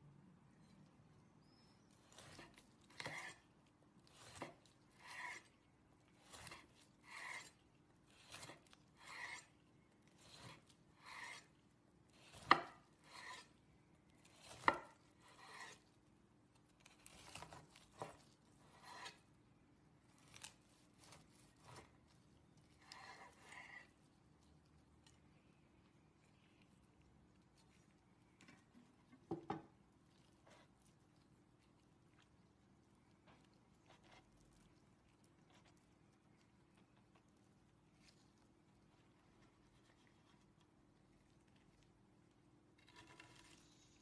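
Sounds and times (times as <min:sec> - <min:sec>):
knife sawing through meat: 0:02.2 - 0:03.4, 0:04.2 - 0:05.5, 0:06.2 - 0:09.5, 0:10.2 - 0:11.5, 0:12.3 - 0:13.5, 0:14.4 - 0:15.8, 0:18.6 - 0:19.2
knife knocking on wooden board: 0:29.3 - 0:29.7.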